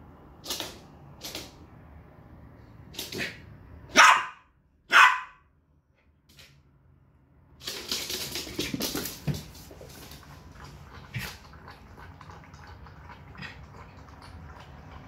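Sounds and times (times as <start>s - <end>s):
dog barking: 3.2s - 5.5s.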